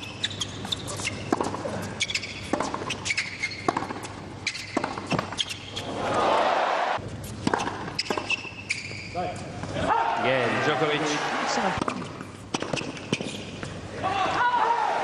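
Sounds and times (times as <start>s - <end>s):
sneaker squeaks on court: 0.0s - 6.0s, 7.5s - 9.4s, 12.6s - 13.6s
tennis ball struck by racquets: 1.2s - 1.6s, 2.2s - 5.4s, 7.4s - 8.4s, 11.8s - 13.3s
crowd noise: 5.9s - 7.0s, 9.7s - 11.9s.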